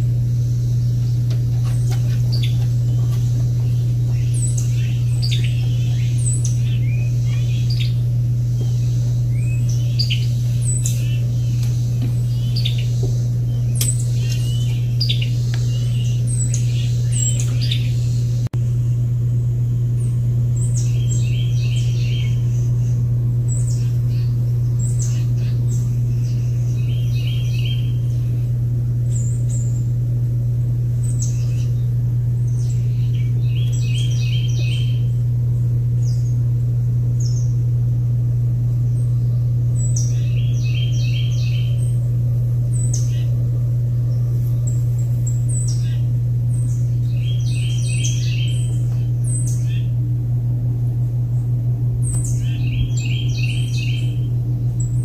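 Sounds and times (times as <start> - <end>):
steady low hum: 0.0 - 55.0
wild birds chirping and singing: 0.0 - 55.0.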